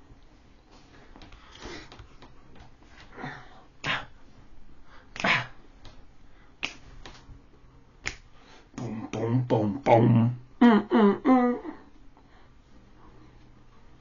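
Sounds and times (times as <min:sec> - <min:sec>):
person making breathy vocal sounds: 0:08.8 - 0:11.9.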